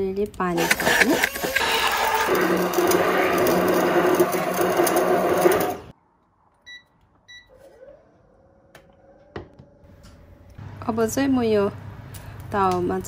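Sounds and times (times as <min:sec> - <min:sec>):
hand blender running: 0:00.6 - 0:05.9.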